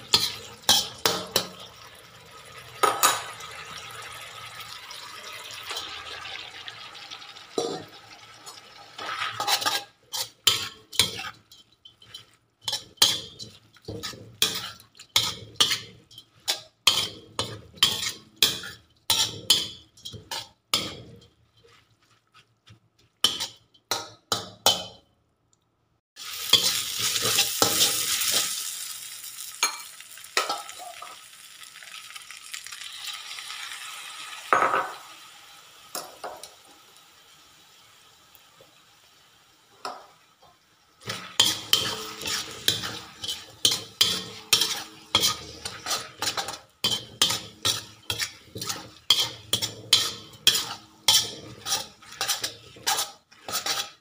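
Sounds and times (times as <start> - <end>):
spatula scraping wok: 0.0 - 1.8, 7.6 - 25.0, 26.2 - 31.3, 41.0 - 54.0
frying sizzle: 0.0 - 25.0, 26.2 - 54.0.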